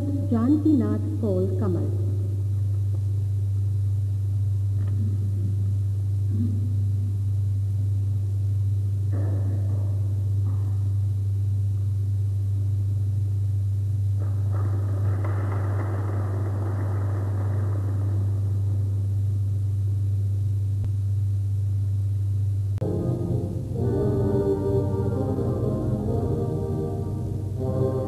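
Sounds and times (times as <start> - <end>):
low electrical hum: 0.0 - 28.0.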